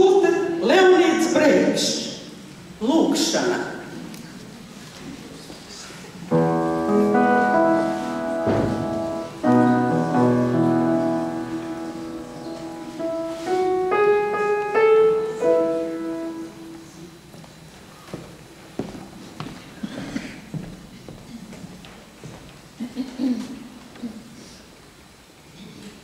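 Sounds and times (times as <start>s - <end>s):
grand piano playing: 6.3s - 17.2s.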